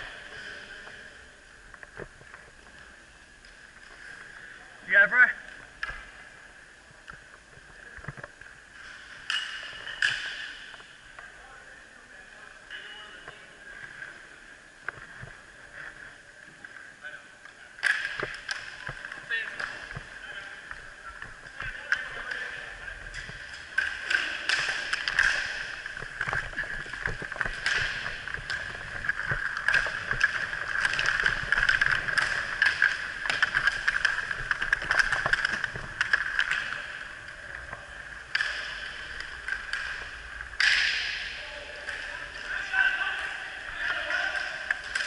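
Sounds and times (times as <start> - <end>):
clicks of sticks and puck: 1.7 - 4.4, 5.4 - 6.3, 7.0 - 11.3, 17.4 - 43.3, 43.9 - 45.0
inline skate wheels rolling: 18.2 - 42.8.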